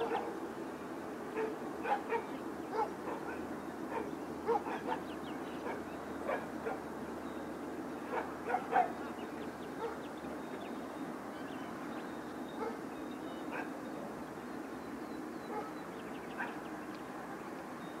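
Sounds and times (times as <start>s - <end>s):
background noise: 0.0s - 18.0s
dog barking and yipping: 1.4s - 3.3s, 3.9s - 5.0s, 8.1s - 9.0s, 15.5s - 15.8s.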